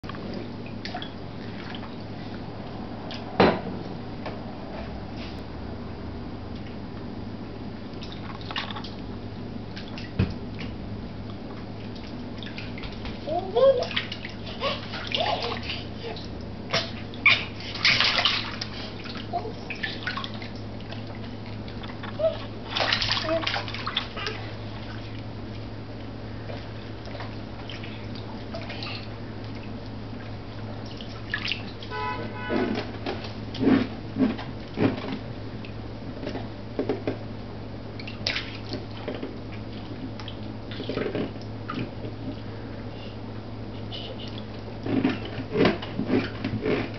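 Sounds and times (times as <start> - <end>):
steady low hum: 0.0 - 46.9
water splashing in baby bath: 0.2 - 2.4, 8.0 - 9.1, 11.7 - 25.7, 26.6 - 33.9, 38.0 - 42.4.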